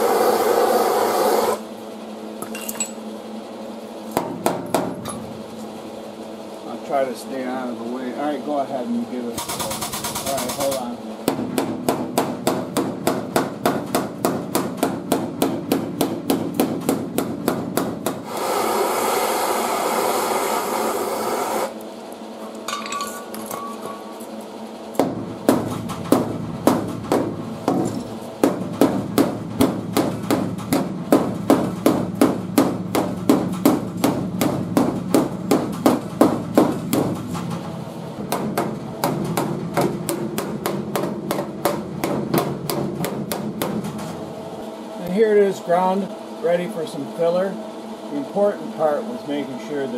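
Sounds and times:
hammer striking sheet metal: 9.6s - 18.4s, 25.0s - 37.3s, 38.3s - 44.1s.

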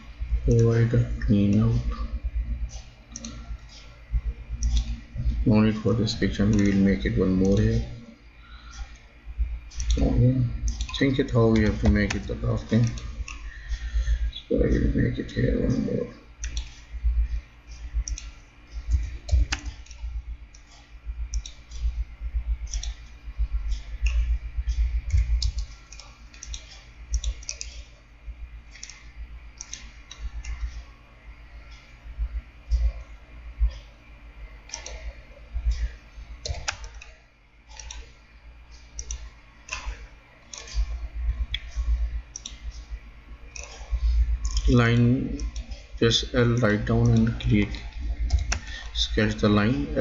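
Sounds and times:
computer mouse clicks: 2.7s - 3.9s, 4.6s - 5.4s, 6.2s - 9.1s, 9.7s - 14.4s, 16.4s - 22.0s, 22.6s - 28.0s, 28.7s - 31.0s, 34.6s - 45.9s, 46.6s - 50.0s.

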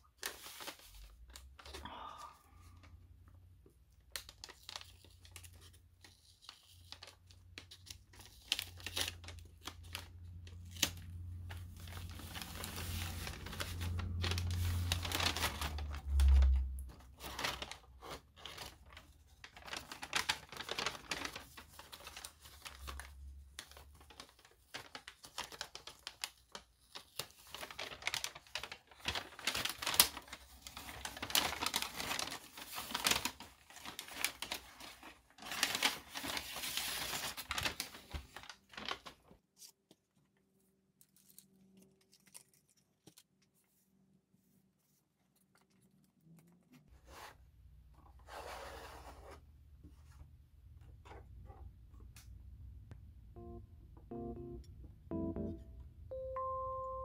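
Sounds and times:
paper rustling and crinkling: 0.0s - 1.8s, 4.0s - 47.4s.

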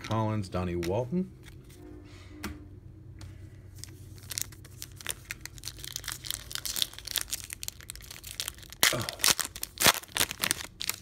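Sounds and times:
plastic wrapper tearing and crinkling: 3.7s - 11.0s.

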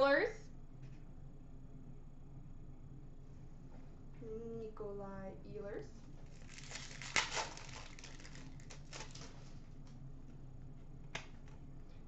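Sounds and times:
cards rustling: 6.3s - 9.5s
wrapper crinkling: 6.3s - 9.5s.

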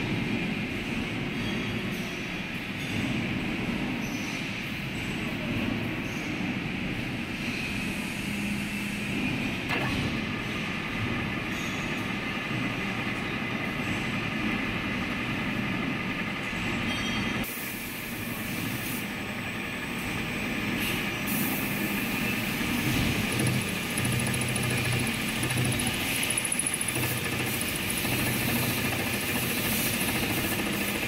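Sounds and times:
milling machine running: 18.0s - 31.0s.

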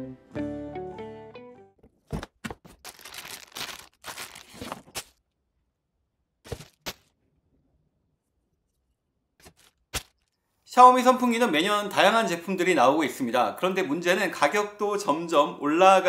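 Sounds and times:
cardboard tearing: 2.1s - 5.2s, 6.5s - 7.1s.

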